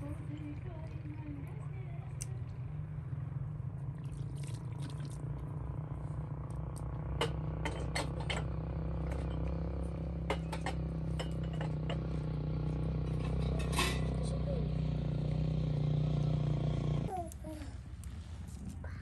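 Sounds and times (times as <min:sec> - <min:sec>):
tableware clinking: 0:13.2 - 0:14.2.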